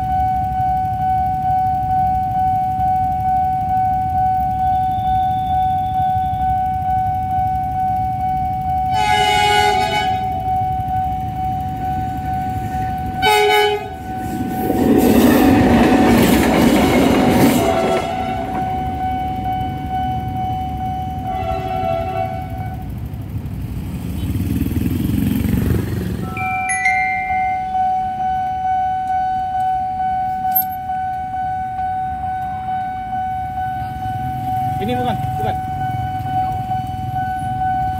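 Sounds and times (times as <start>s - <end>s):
level crossing alarm tone: 0.0s - 21.7s, 26.2s - 37.9s
train passing over crossing: 0.0s - 37.9s
locomotive horn blasts: 8.6s - 14.2s, 17.3s - 23.0s.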